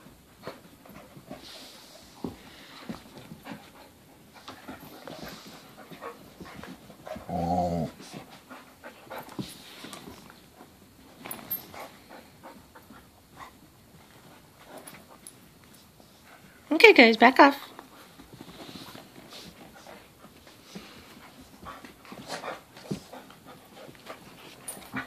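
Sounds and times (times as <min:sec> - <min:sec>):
dogs scuffling on carpet: 0:00.0 - 0:16.7, 0:17.3 - 0:25.0
dogs panting: 0:00.2 - 0:16.7, 0:17.6 - 0:25.0
dog growling: 0:07.1 - 0:08.1.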